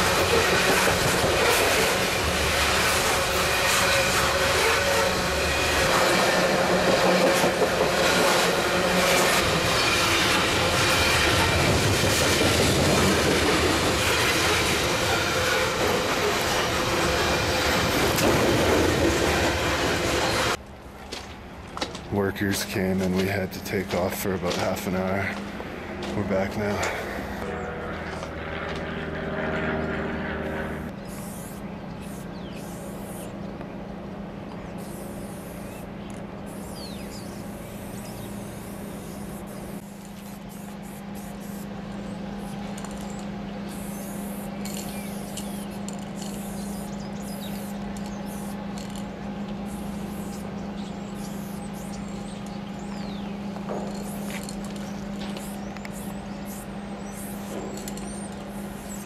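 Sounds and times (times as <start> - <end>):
steady low hum: 0.0 - 59.0
spray paint can hissing: 31.1 - 33.3, 34.8 - 35.9, 36.5 - 41.7, 42.4 - 49.0, 49.7 - 50.4, 53.9 - 59.0.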